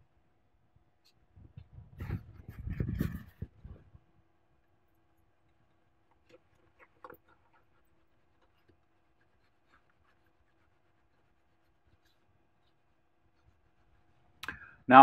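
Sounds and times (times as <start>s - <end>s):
faint steady hum: 0.0s - 15.0s
cloth rubbing circuit board: 1.1s - 4.0s, 6.2s - 14.3s.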